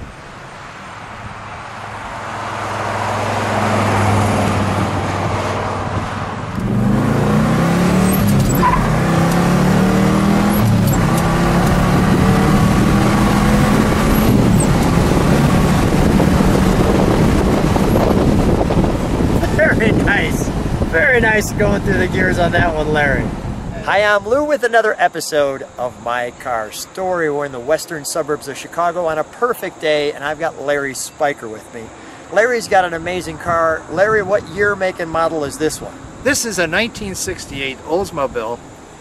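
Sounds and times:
car passing by: 0:00.6 - 0:20.9
car engine accelerating: 0:02.0 - 0:23.7.

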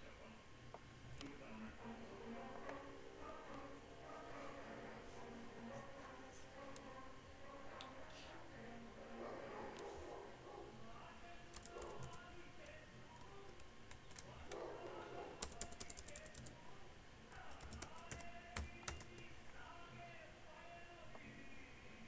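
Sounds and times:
keyboard typing: 0:11.5 - 0:14.5, 0:15.4 - 0:16.6, 0:17.3 - 0:19.3.

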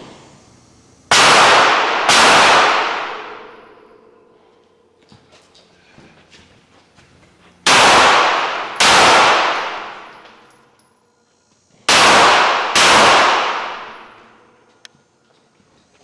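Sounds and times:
handgun shots with ringing echo: 0:01.1 - 0:03.8, 0:07.7 - 0:10.6, 0:11.9 - 0:14.4.

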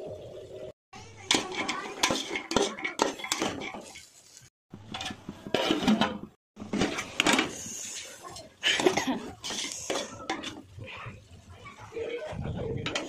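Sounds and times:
metal ladle scraping pot: 0:01.1 - 0:04.2, 0:04.8 - 0:08.1, 0:08.7 - 0:11.2, 0:12.5 - 0:13.0
metal lid clanking: 0:01.3 - 0:04.0, 0:04.8 - 0:07.5.

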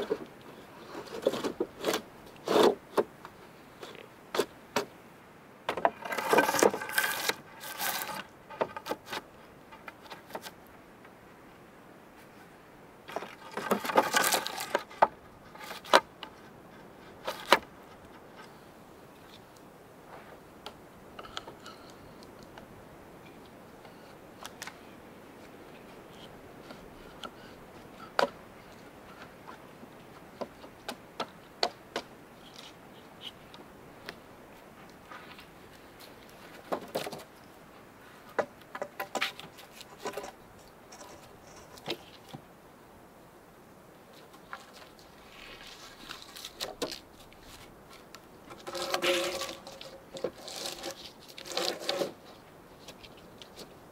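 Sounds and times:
knocks and clatters of handling: 0:05.7 - 0:10.6, 0:13.1 - 0:16.4, 0:38.3 - 0:42.4.

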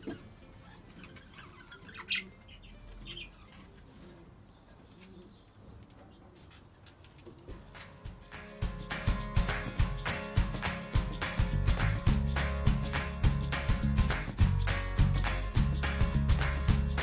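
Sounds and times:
budgerigars chirping: 0:00.9 - 0:03.7.

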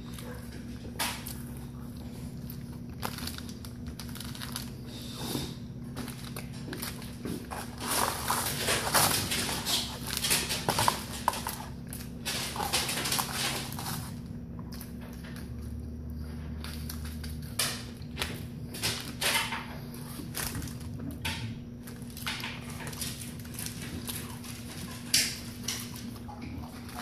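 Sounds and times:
paper bag crinkling: 0:00.0 - 0:14.9
chewing: 0:00.0 - 0:27.0.

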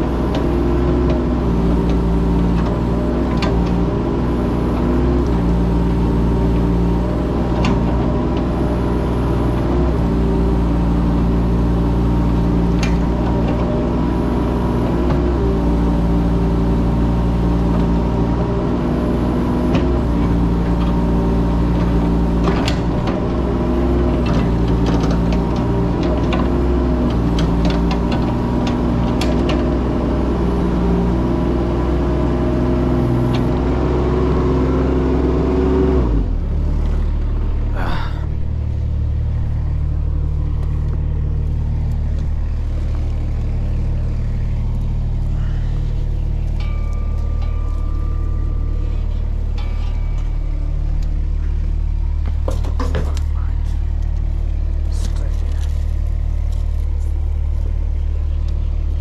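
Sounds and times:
excavator engine running: 0:00.0 - 0:59.0
sharp clicks and knocks: 0:39.4 - 0:54.3.

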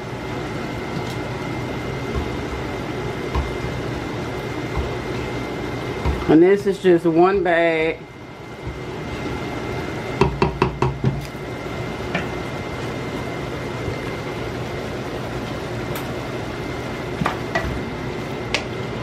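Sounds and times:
cooking in a pot: 0:00.0 - 0:19.0
utensil knocking on cookware: 0:10.2 - 0:11.2.

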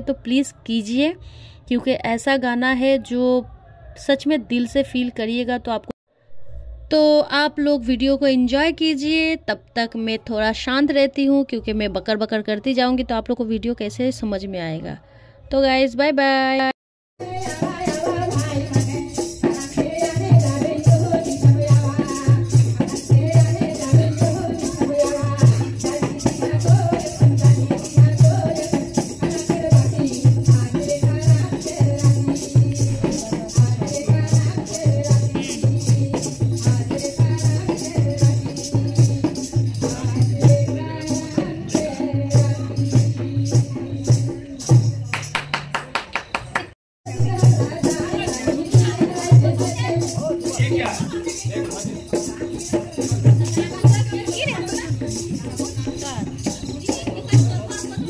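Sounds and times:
shaking rattle: 0:17.2 - 0:45.4, 0:47.3 - 0:58.0.

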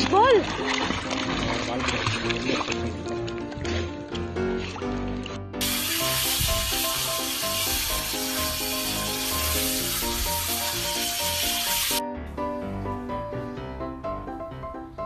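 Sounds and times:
background music: 0:00.0 - 0:15.0
shower head spraying water: 0:05.6 - 0:12.0.

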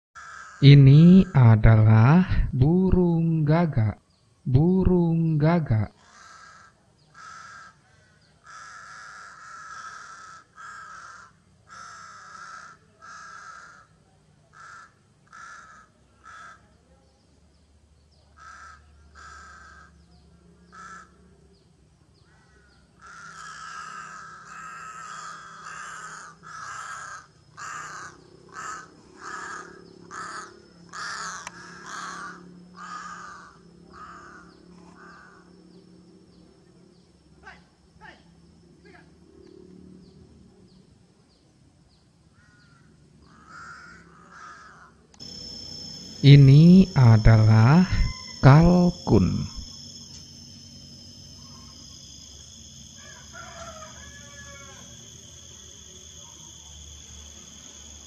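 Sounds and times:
crow cawing: 0:00.2 - 0:00.7, 0:06.0 - 0:16.7, 0:18.4 - 0:20.0, 0:20.7 - 0:21.2, 0:22.3 - 0:35.5, 0:42.3 - 0:45.4, 0:53.0 - 0:55.0.

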